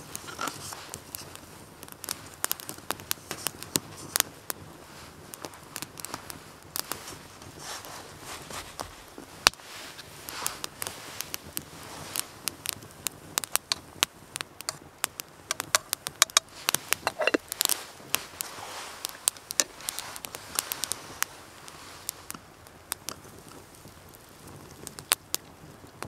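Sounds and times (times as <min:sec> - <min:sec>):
wood fire crackling and popping: 0:00.0 - 0:26.0
spoon squeaking in metal kettle: 0:17.0 - 0:17.4.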